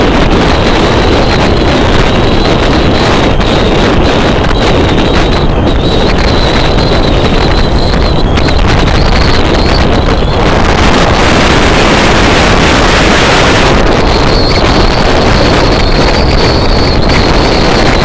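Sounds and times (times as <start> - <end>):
vehicle running noise: 0.0 - 18.0
wind buffeting microphone: 0.0 - 18.0.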